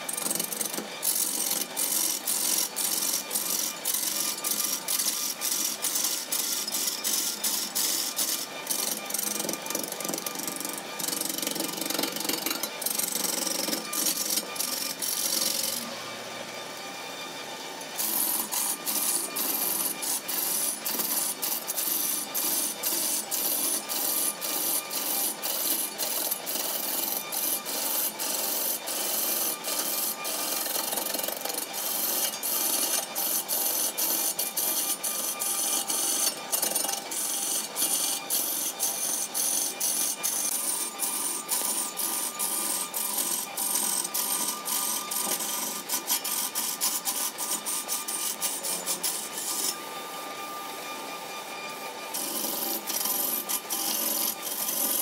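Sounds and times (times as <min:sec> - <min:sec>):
gouge rasping on spinning wood: 0:00.0 - 0:16.0, 0:17.8 - 0:49.8, 0:52.1 - 0:55.0
lathe whine: 0:00.0 - 0:55.0.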